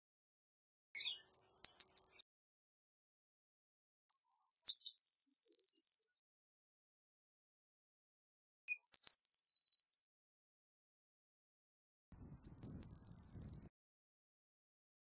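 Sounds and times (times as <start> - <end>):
blue tit singing: 1.0 - 2.2, 4.1 - 6.2, 8.7 - 10.0, 12.2 - 13.7.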